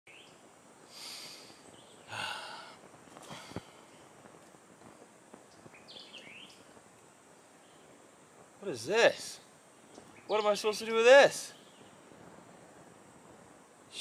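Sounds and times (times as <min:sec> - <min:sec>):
bird chirping: 0:00.1 - 0:00.5, 0:01.2 - 0:02.6, 0:04.8 - 0:13.0.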